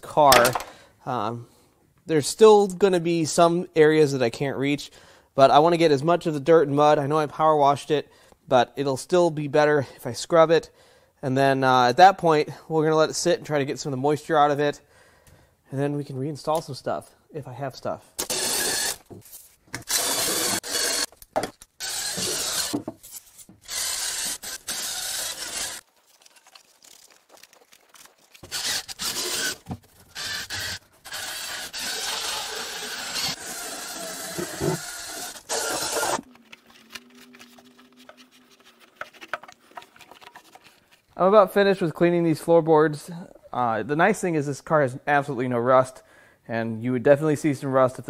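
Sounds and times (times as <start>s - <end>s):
drill scrub brush scrubbing metal: 18.2s - 19.0s, 19.9s - 21.1s, 21.8s - 22.8s, 23.6s - 25.8s, 28.4s - 36.4s.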